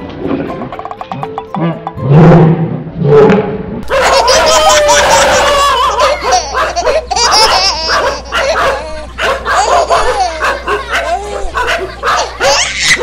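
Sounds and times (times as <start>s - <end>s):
dogs barking: 3.8s - 13.0s
people laughing: 3.9s - 13.0s.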